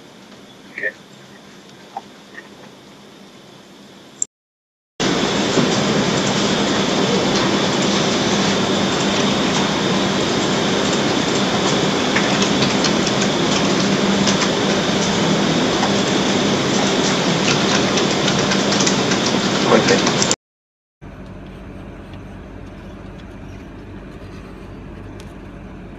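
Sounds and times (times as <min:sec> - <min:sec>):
low hum: 0:21.0 - 0:25.9.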